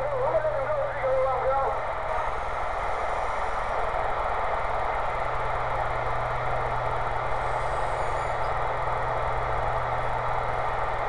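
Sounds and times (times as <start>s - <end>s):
radio static hiss: 0.0s - 3.8s.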